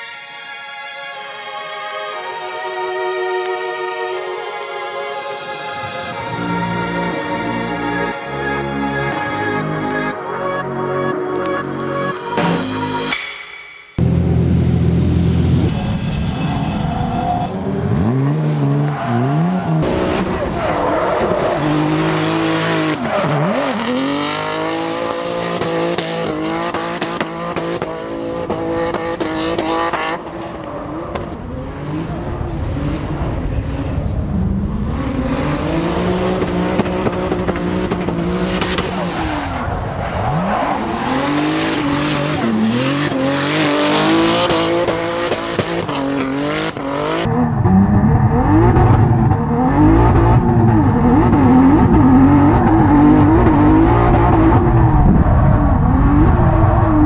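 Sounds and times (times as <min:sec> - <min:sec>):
car engine revving: 0:14.0 - 0:57.0.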